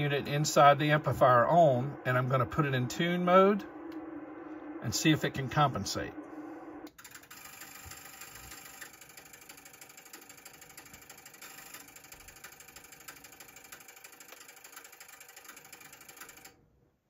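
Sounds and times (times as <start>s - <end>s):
relays clicking rapidly: 6.9s - 16.5s.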